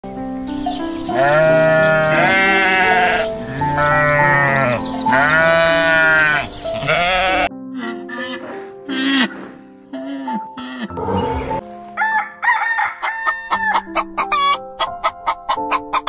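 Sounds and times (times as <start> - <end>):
background music: 0.0 - 16.0
goats bleating: 1.1 - 11.6.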